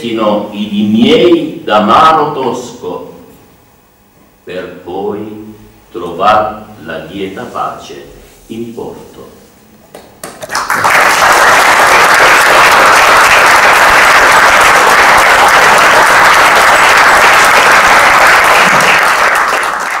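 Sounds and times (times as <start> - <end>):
audience applauding: 10.2 - 20.0.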